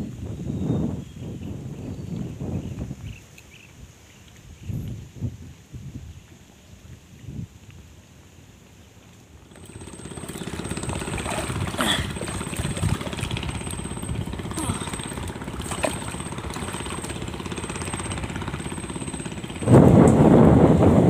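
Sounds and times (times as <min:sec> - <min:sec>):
engine running: 0:09.4 - 0:21.0.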